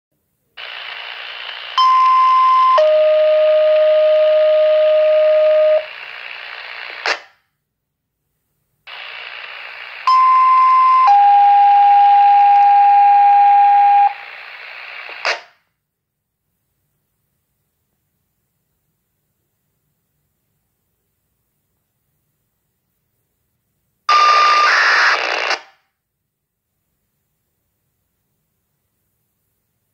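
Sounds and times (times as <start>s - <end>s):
radio hiss: 0.6s - 1.8s, 4.7s - 7.2s, 8.9s - 10.1s, 13.6s - 15.5s, 24.1s - 25.6s.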